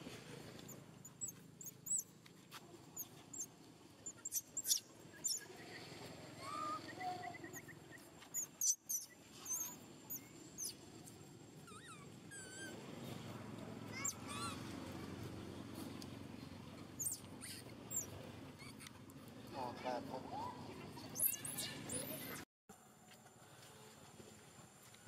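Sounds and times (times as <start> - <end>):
baby monkey squeaking and chirping: 1.0 - 2.1, 3.0 - 5.5, 6.4 - 10.8, 11.6 - 12.8, 13.9 - 14.7, 17.0 - 18.9, 21.0 - 22.4.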